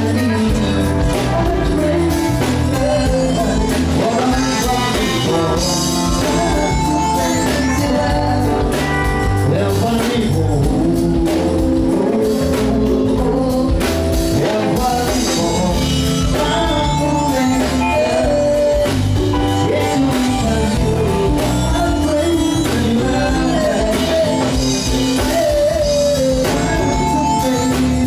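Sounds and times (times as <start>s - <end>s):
bass line: 0.0s - 28.0s
guitar: 0.0s - 28.0s
person singing: 0.0s - 28.0s.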